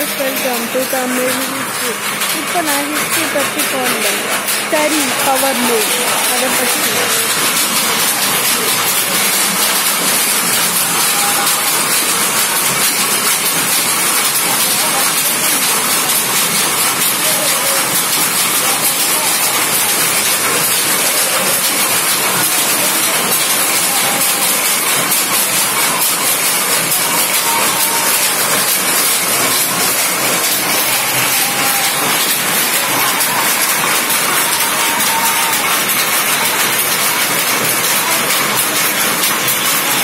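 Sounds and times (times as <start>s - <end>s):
power looms clattering: 0.0s - 40.0s.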